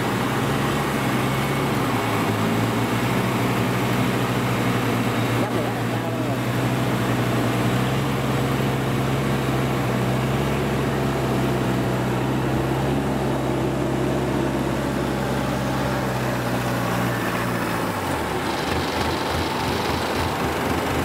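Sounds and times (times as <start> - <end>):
diesel engine running: 0.0 - 21.0.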